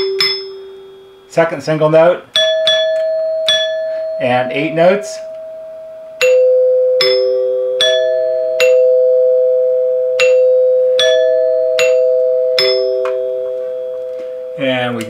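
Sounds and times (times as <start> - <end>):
bar chime notes ringing: 0.0 - 15.0.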